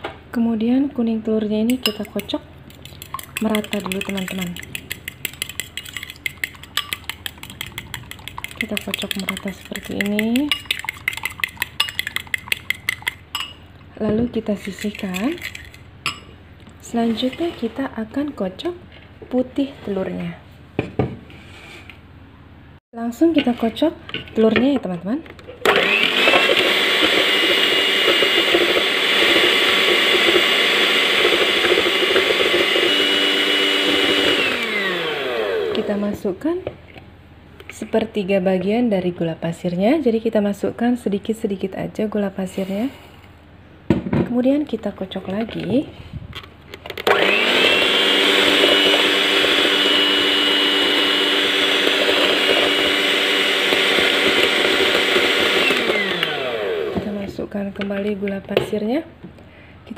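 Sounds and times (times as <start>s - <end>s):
electric hand mixer whining: 25.7s - 36.0s, 47.0s - 57.1s.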